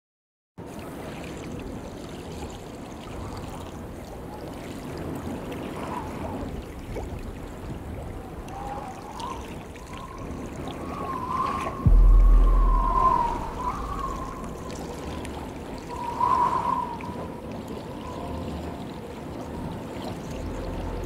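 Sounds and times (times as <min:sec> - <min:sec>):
running water: 0:00.6 - 0:21.0
faint wavering whistle tones: 0:08.3 - 0:21.0.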